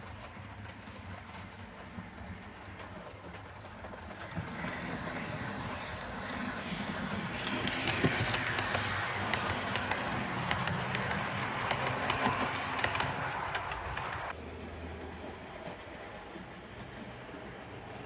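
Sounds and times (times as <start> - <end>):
wheels clicking over rail joints: 0.0 - 18.0
model train motor hum: 4.3 - 14.3.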